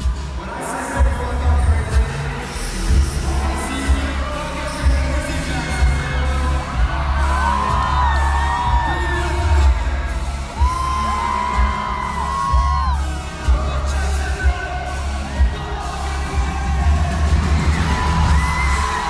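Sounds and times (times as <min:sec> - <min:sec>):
live pop band with heavy bass: 0:00.0 - 0:19.0
man singing: 0:00.0 - 0:19.0.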